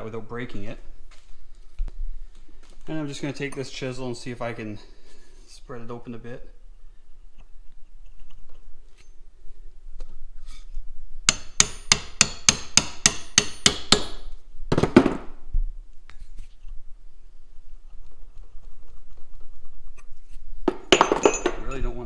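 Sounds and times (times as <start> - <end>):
hammer tapping metal chisel: 11.3 - 14.2.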